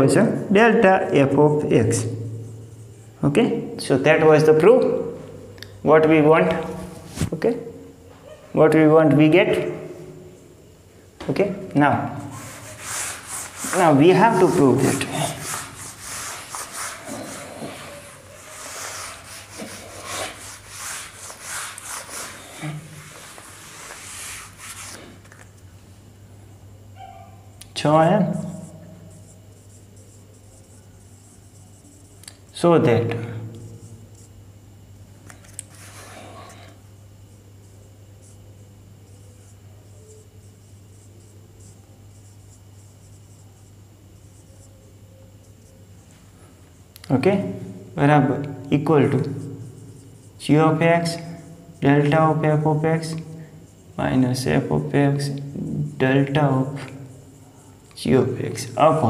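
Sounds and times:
steady low hum: 0:00.0 - 0:59.0
marker scratching on whiteboard: 0:01.8 - 0:03.2, 0:12.2 - 0:25.3, 0:28.3 - 0:32.6, 0:35.4 - 0:36.8, 0:37.6 - 0:46.1, 0:48.4 - 0:58.0
eraser wiping whiteboard: 0:12.2 - 0:25.3, 0:35.6 - 0:36.8.

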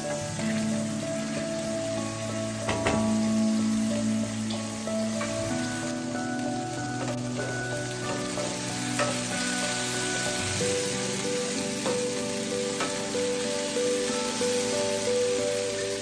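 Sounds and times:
background music with held notes: 0:00.0 - 0:16.0
vegetables sizzling in a skillet: 0:00.0 - 0:16.0
spatula knocking against pan: 0:02.6 - 0:03.2.

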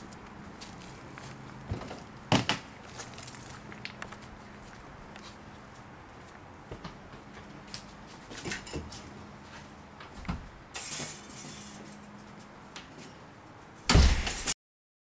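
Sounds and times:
footsteps: 0:00.0 - 0:13.2
thump: 0:13.9 - 0:14.4.

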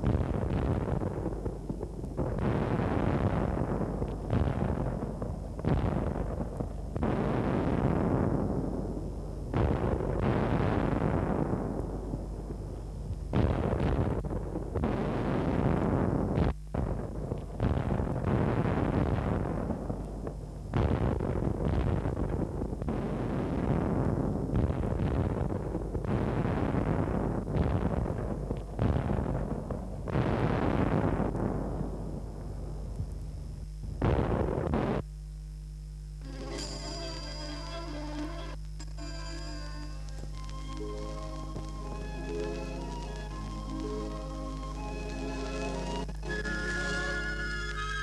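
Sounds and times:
artillery explosions with rumble: 0:00.0 - 0:35.0.

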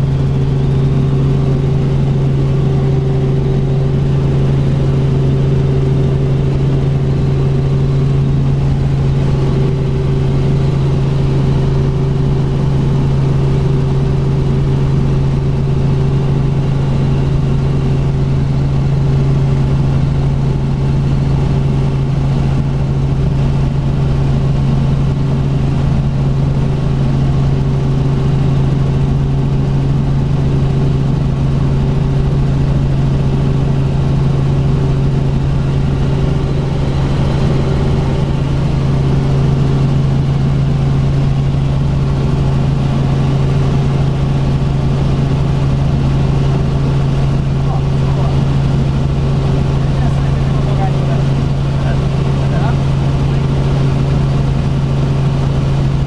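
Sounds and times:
helicopter engine and rotors drone: 0:00.0 - 0:56.0.

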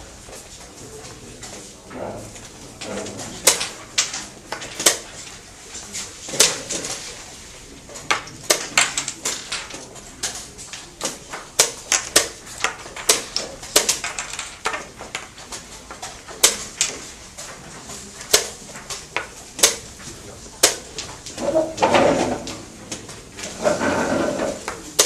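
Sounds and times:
chess pieces clicking on board: 0:02.8 - 0:05.4, 0:07.9 - 0:25.0.

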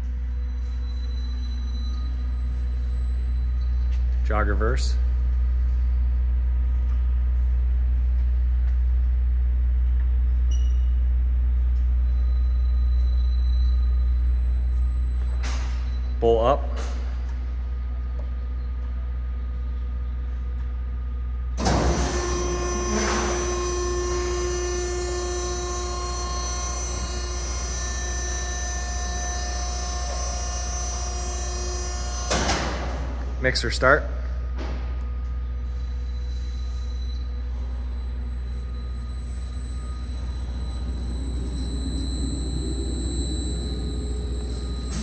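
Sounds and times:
mixer motor humming: 0:21.6 - 0:32.3, 0:38.3 - 0:45.0.

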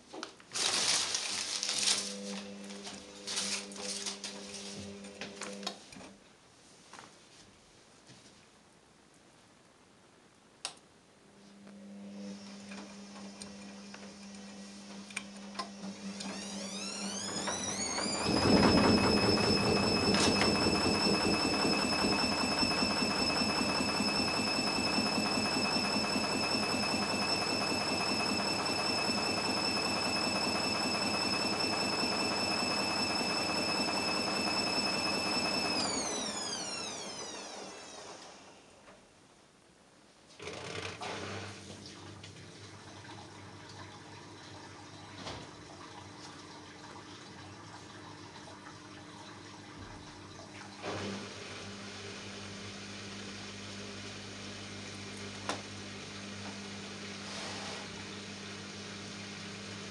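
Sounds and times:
washing machine drum motor hum: 0:14.4 - 0:38.6, 0:40.8 - 0:53.0
rising motor whine: 0:15.6 - 0:38.9.

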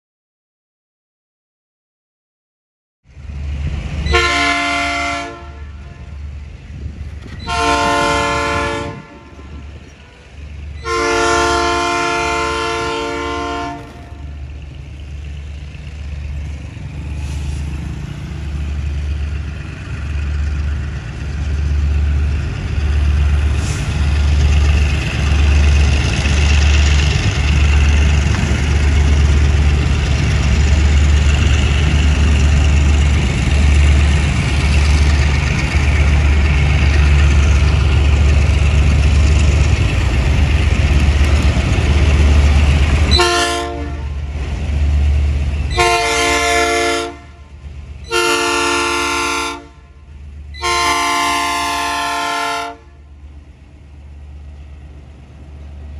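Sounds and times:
diesel engine rumble: 0:03.1 - 0:55.9
locomotive air horn blasts: 0:04.1 - 0:06.1, 0:07.4 - 0:10.2, 0:10.8 - 0:14.3, 0:43.1 - 0:44.2, 0:45.7 - 0:47.5, 0:48.1 - 0:50.0, 0:50.6 - 0:53.1.

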